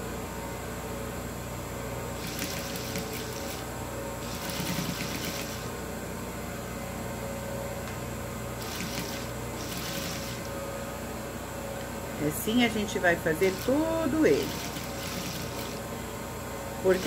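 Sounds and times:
sewing machine stitching: 2.2 - 3.6, 4.2 - 5.6, 8.6 - 10.5, 13.4 - 15.8.

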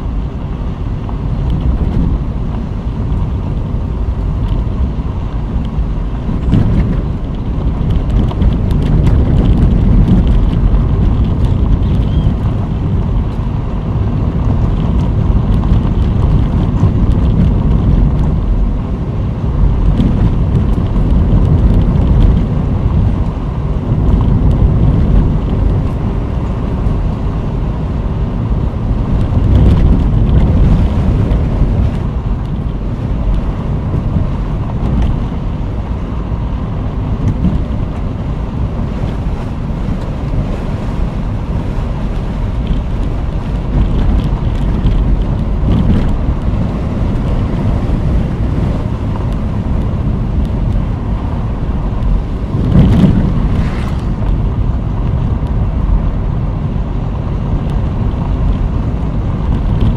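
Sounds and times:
tyres rumbling on gravel road: 0.0 - 59.9.

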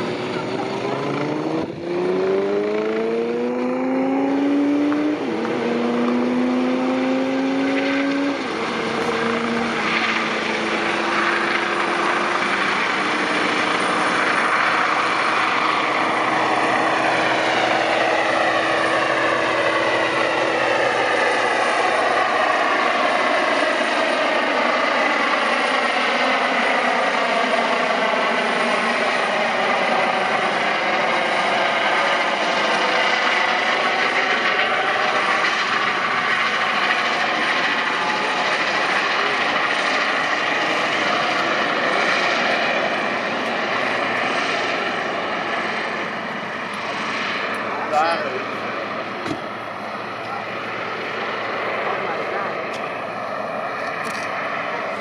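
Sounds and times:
helicopter turbine and rotor: 0.0 - 55.0.

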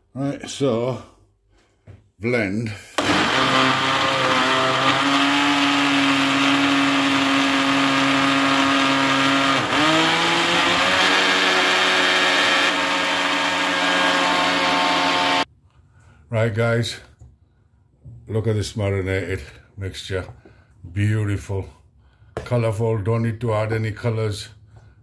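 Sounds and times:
blender running: 3.0 - 15.5.

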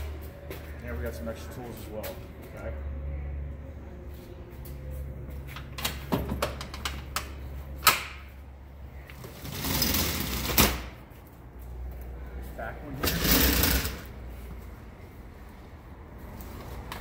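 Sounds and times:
tool mounts clicking and knocking: 5.7 - 8.3
roll-up shutter door rattling: 9.2 - 10.9, 13.0 - 14.1.

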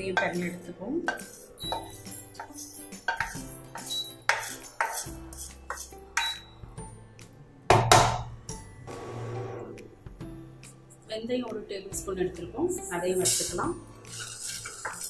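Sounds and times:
soft background music: 0.0 - 15.0
spatula scraping pan: 1.1 - 6.4, 13.3 - 15.0.

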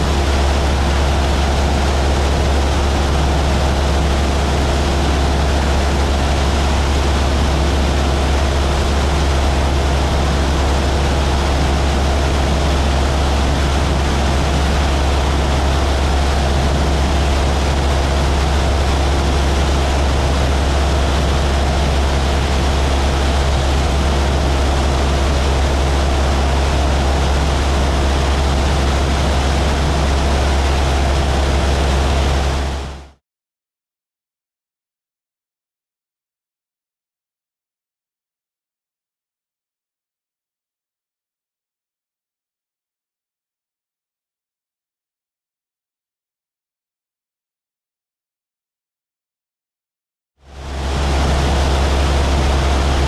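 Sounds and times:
propeller airplane engine drone: 0.0 - 33.2, 50.4 - 53.0.

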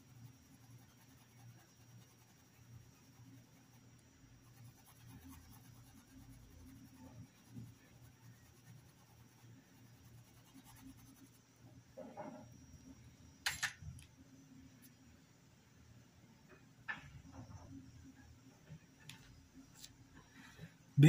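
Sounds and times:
paintbrush strokes on fabric: 0.0 - 11.5
low steady hum: 0.0 - 21.0.

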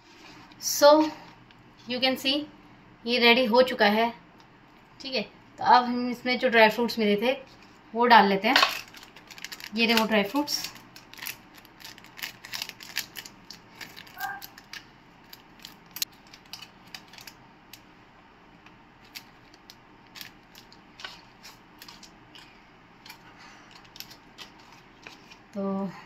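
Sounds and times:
plastic packet crinkling: 8.6 - 17.9, 19.0 - 25.6.

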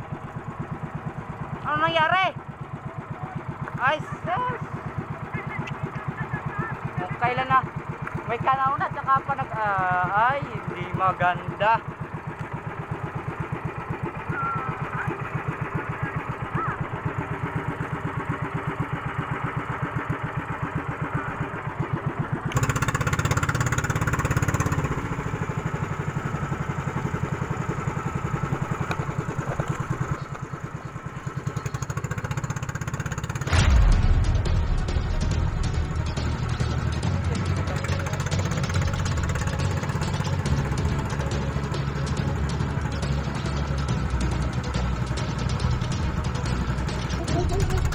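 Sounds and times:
boat engine pulsing: 0.0 - 47.9
low rumble: 33.3 - 41.2.

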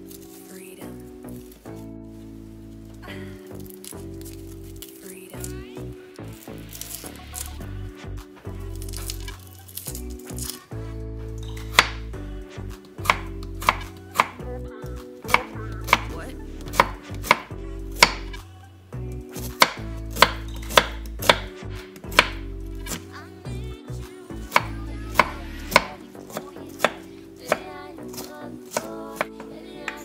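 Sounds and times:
knife chopping on wooden board: 11.7 - 12.0, 13.0 - 14.4, 15.3 - 16.1, 16.7 - 18.4, 19.4 - 23.0, 24.5 - 30.0.

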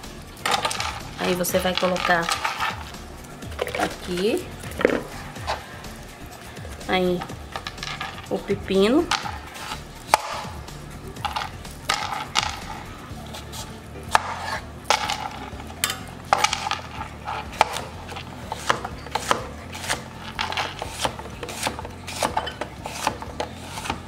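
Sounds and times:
knife chopping on plastic board: 17.3 - 24.0.

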